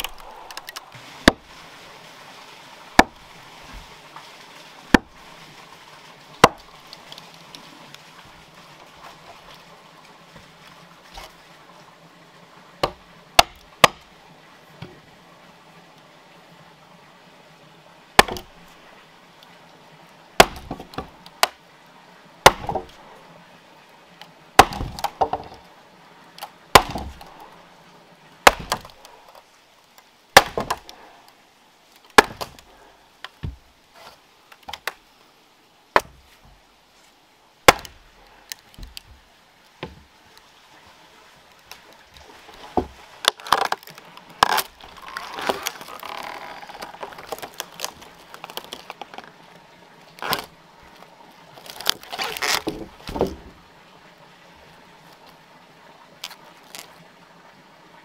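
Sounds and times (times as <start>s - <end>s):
wood cracking and splintering: 0.0s - 1.5s, 2.9s - 3.9s, 4.9s - 5.3s, 6.4s - 7.6s, 12.8s - 14.1s, 18.2s - 18.7s, 20.4s - 21.6s, 22.4s - 23.0s, 24.6s - 25.6s, 26.4s - 27.5s, 28.4s - 29.4s, 30.4s - 31.0s, 32.0s - 33.7s, 37.6s - 40.0s, 41.6s - 49.4s, 50.2s - 51.0s, 51.6s - 53.6s, 56.2s - 57.0s
mallet hammering wooden wedge: 22.4s - 22.8s, 24.6s - 25.4s, 26.7s - 27.2s, 28.4s - 28.8s.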